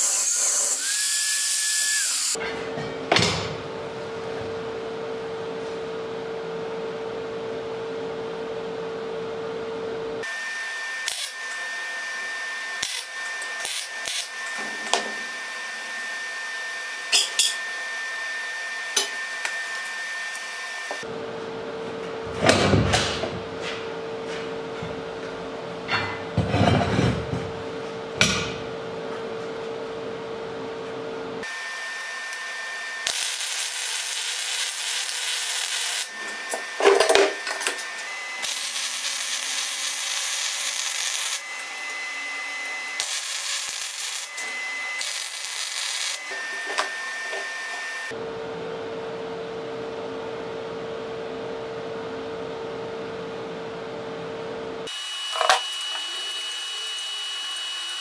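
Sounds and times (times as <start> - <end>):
welding arc frying hiss: 0.0 - 2.4, 11.0 - 11.4, 12.7 - 15.0, 31.4 - 48.0.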